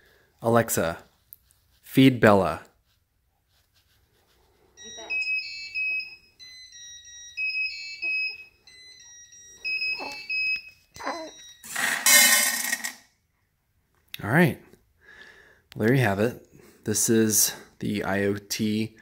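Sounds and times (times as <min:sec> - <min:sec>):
beeping electronic melody: 0:04.8 - 0:11.8
kibble clattering into metal bowl: 0:11.7 - 0:13.0.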